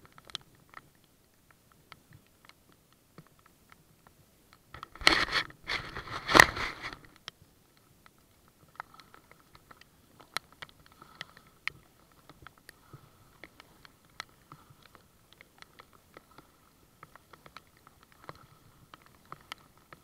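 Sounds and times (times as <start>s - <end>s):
raindrops ticking on camera housing: 0.0s - 20.0s
scraping against camera housing: 4.8s - 7.1s.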